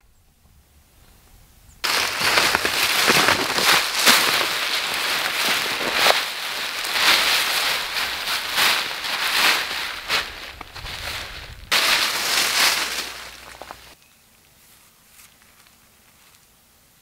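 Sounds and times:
nylon tent rustling and crinkling: 1.8 - 14.0.

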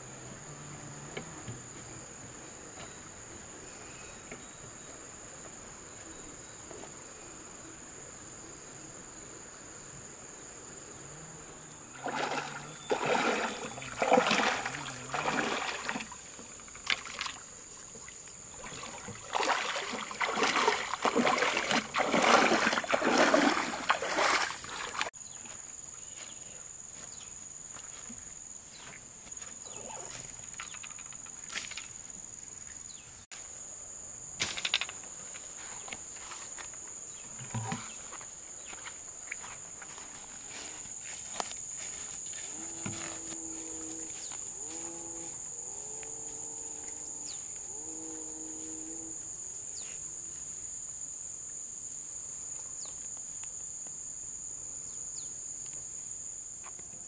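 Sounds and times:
crickets chirring: 0.0 - 57.0
water splashing around wading legs: 12.0 - 25.1.

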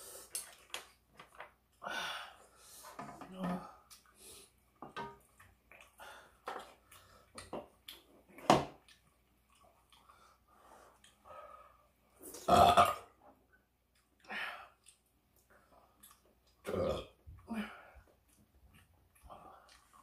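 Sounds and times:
eating and mouth noises: 3.8 - 11.3, 12.1 - 20.0
person burping: 12.4 - 13.2, 16.6 - 17.2.

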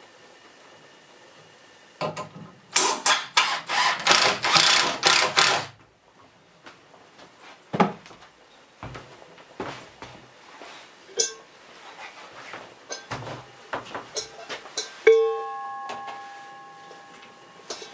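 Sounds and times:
cordless drill driving screws: 3.1 - 5.8.

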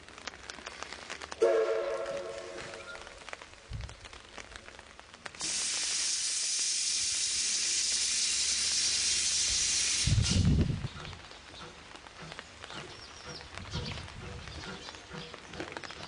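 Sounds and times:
steam hissing loudly: 5.4 - 10.6.

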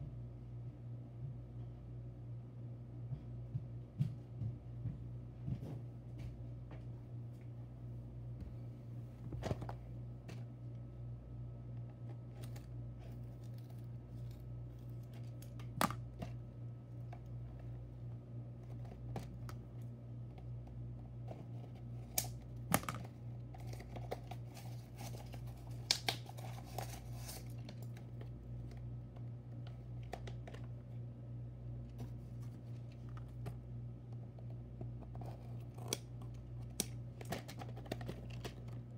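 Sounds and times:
steady low hum: 0.0 - 38.9
packaging crinkling: 21.6 - 30.8
packaging clicks and taps: 32.8 - 38.8.

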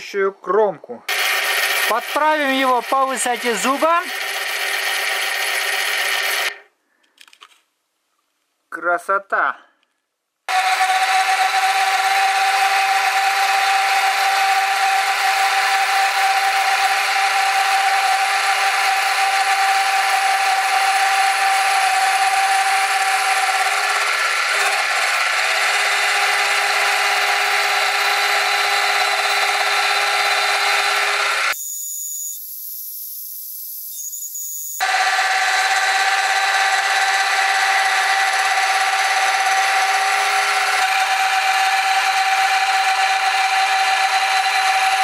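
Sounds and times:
milling machine whine: 1.1 - 6.6, 10.5 - 45.0
saw cutting aluminium: 1.1 - 6.6, 10.5 - 45.0.

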